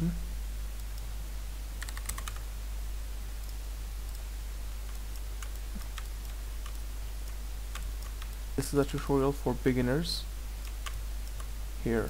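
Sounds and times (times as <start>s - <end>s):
steady low hum: 0.0s - 12.0s
keyboard and mouse clicks: 1.8s - 2.4s, 4.9s - 9.1s, 10.6s - 11.5s.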